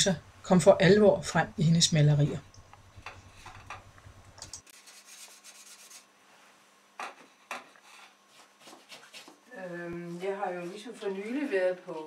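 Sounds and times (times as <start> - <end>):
paintbrush scratching on canvas: 4.7 - 6.1, 7.8 - 9.4.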